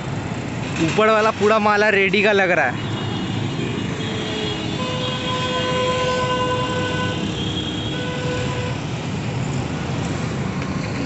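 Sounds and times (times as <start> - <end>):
steady horn-like tone: 2.9 - 8.8.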